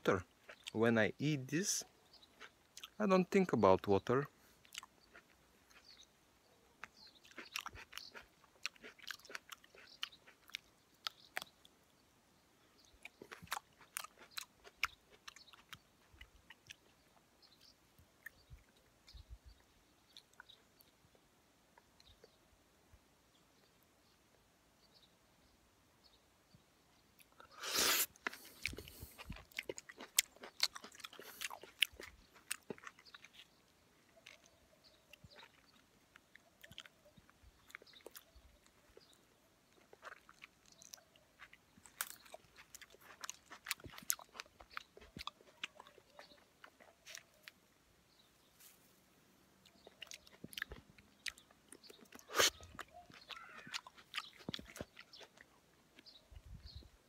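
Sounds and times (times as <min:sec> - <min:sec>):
wet chewing mouth sounds: 0:00.0 - 0:00.8, 0:01.6 - 0:03.0, 0:04.5 - 0:12.0, 0:12.8 - 0:22.4, 0:27.1 - 0:47.8, 0:49.5 - 0:56.8
sharp bite: 0:27.5 - 0:29.4, 0:52.1 - 0:54.8.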